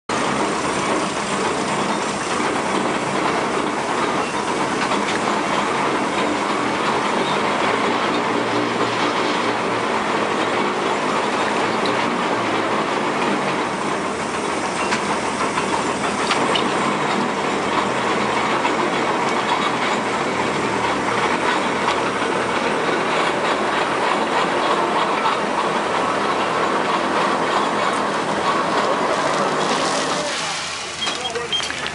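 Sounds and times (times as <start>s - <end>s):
steam machinery clatter and hiss: 0.1s - 31.9s
bucket dragged through dirt: 27.7s - 31.9s.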